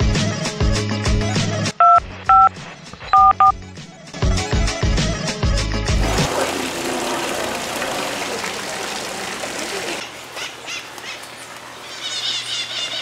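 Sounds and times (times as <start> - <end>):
water splashing from fountain: 5.9 - 13.0.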